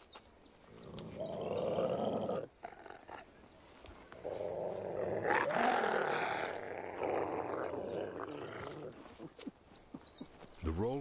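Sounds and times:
wolves snarling and growling: 0:00.7 - 0:03.3, 0:04.2 - 0:09.2.

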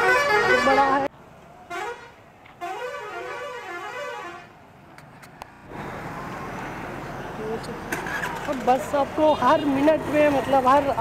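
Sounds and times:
musical vehicle horn tune: 0:00.0 - 0:01.0, 0:01.7 - 0:04.5
street traffic noise: 0:00.0 - 0:11.0.

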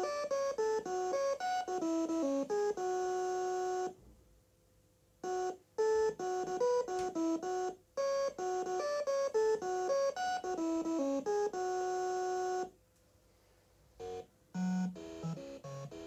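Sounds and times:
buzzy electronic melody: 0:14.0 - 0:16.0.

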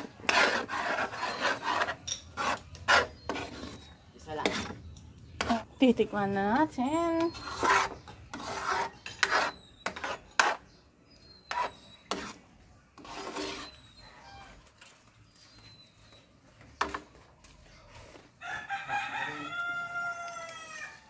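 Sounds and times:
rooster crowing: 0:18.4 - 0:21.0.

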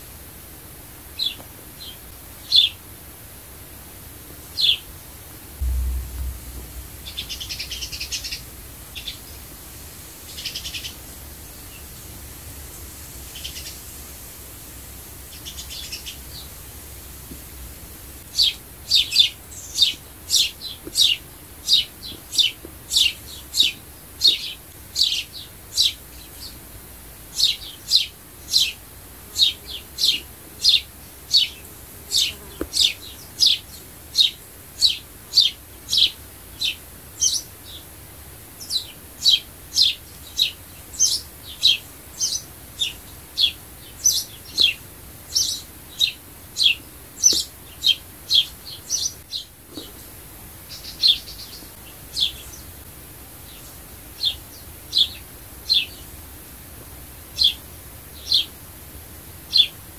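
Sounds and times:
sparrow chirping: 0:38.6 - 0:49.5.

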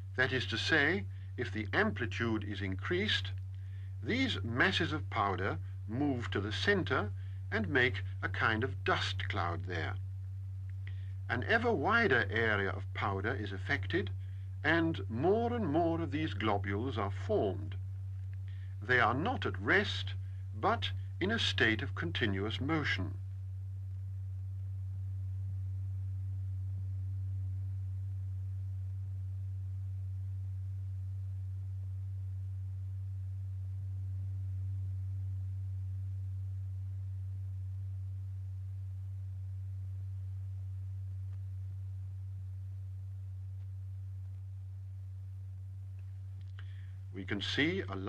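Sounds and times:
steady low pure tone: 0:00.0 - 0:48.0.

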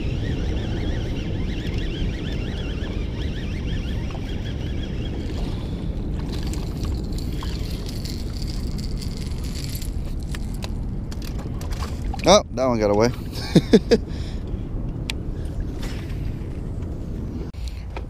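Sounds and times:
wind buffeting microphone: 0:00.0 - 0:17.6
fishing reel whirring: 0:00.1 - 0:10.7.

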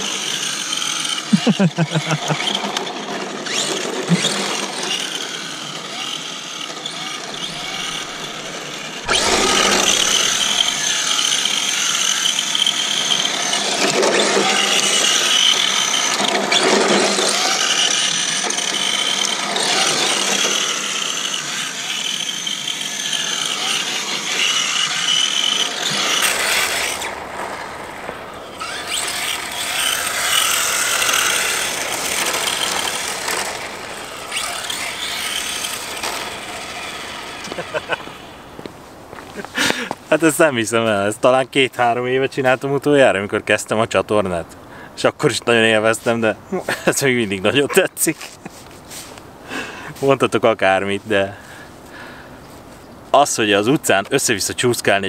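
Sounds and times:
rc car electric motor whining: 0:00.0 - 0:38.7
tyres sliding on asphalt: 0:00.0 - 0:55.0.

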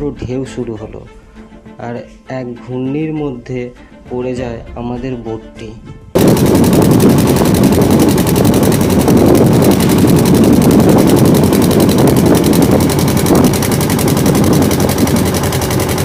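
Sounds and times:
boat engine running hard: 0:06.2 - 0:16.0
wind buffeting microphone: 0:06.2 - 0:16.0.

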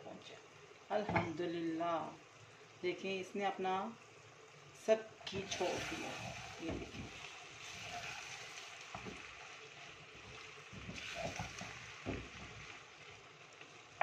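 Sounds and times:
meat sizzling in a pot: 0:00.0 - 0:14.0
wooden spoon stirring and scraping: 0:05.3 - 0:13.2.

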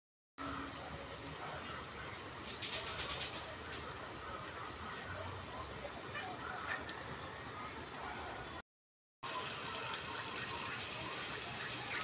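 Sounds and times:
garlic sizzling in hot oil: 0:00.4 - 0:08.6, 0:09.2 - 0:12.0.

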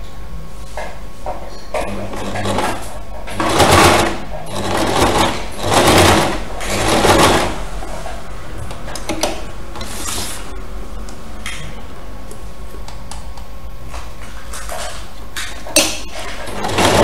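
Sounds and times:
sewing machine stitching: 0:01.8 - 0:07.7, 0:16.1 - 0:17.0.

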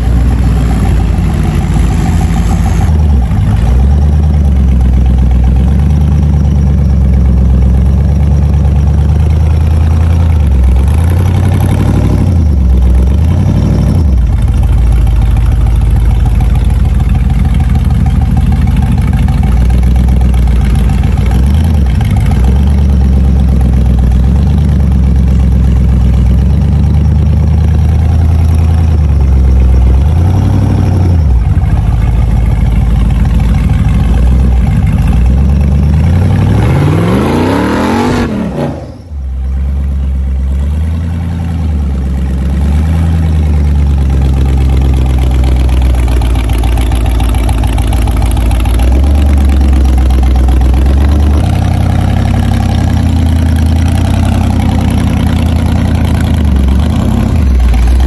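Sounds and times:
engine revving at low revs: 0:00.0 - 0:06.3, 0:09.3 - 0:14.4, 0:27.8 - 0:32.6, 0:33.6 - 0:46.0, 0:48.8 - 0:58.0.

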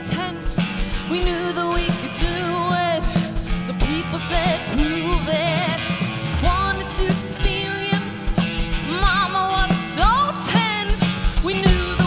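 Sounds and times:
bass guitar: 0:00.0 - 0:12.0
drum beat: 0:00.0 - 0:12.0
electric guitar: 0:00.0 - 0:12.0.

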